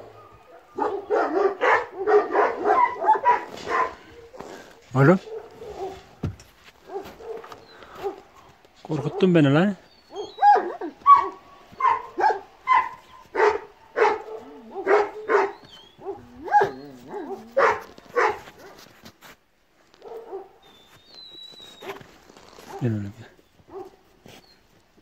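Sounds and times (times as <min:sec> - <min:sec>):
large dog barking: 0:00.0 - 0:06.2, 0:06.8 - 0:18.8, 0:20.0 - 0:20.6, 0:22.6 - 0:23.0, 0:23.7 - 0:24.1.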